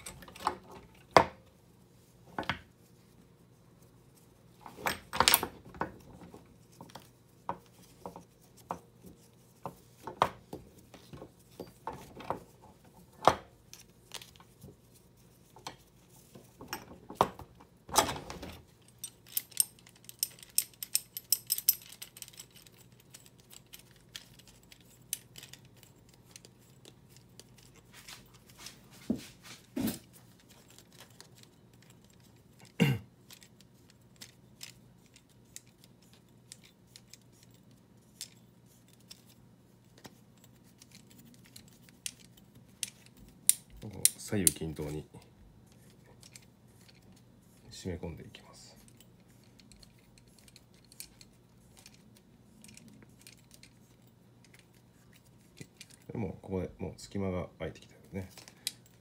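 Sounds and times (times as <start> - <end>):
metal clicks and rattles: 0.0 - 1.2, 15.6 - 28.6, 30.3 - 47.2, 48.7 - 56.1.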